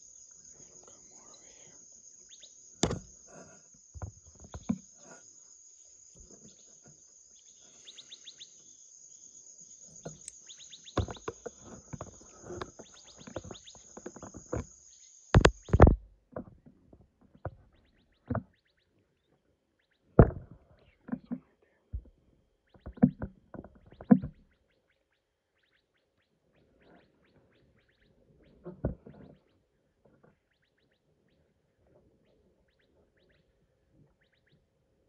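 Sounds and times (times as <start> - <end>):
crickets and insects chirring: 0.0 - 35.0
sharp knocks and clicks: 2.8 - 3.1, 10.0 - 14.7, 15.3 - 18.6, 20.2 - 22.1, 22.7 - 24.5.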